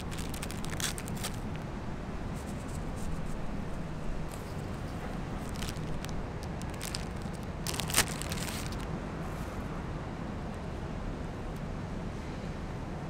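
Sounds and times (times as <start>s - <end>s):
food packaging crinkling: 0.0s - 1.7s, 4.2s - 8.9s
packaging snap: 5.4s - 8.8s.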